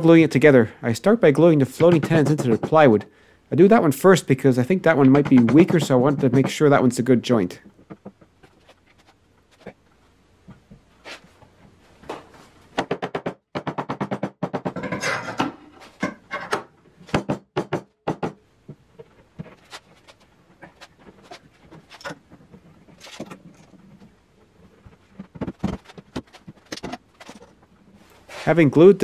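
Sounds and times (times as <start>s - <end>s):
wooden panels knocking and clattering: 7.6s - 9.8s, 12.1s - 23.8s, 25.2s - 27.6s.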